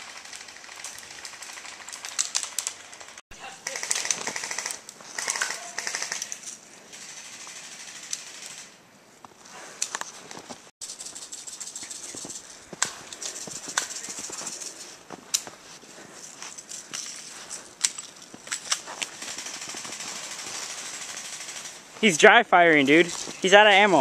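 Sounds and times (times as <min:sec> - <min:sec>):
airsoft rifle firing bursts: 0:03.6 - 0:06.4.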